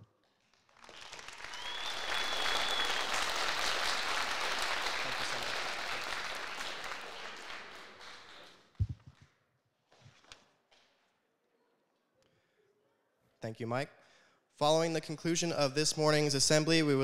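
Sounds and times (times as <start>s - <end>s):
audience applauding: 0.5s - 8.8s
high whistle: 1.4s - 3.4s.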